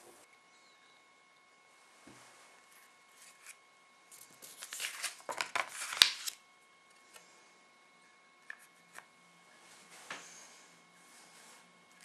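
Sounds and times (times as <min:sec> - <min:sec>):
paper rustling and crinkling: 0:02.7 - 0:06.4.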